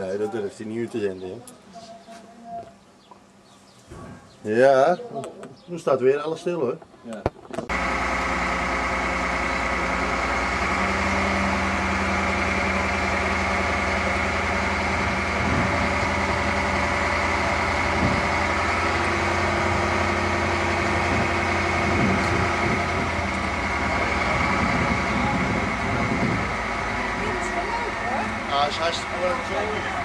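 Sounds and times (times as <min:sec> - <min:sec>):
crane engine running: 0:07.7 - 0:30.0.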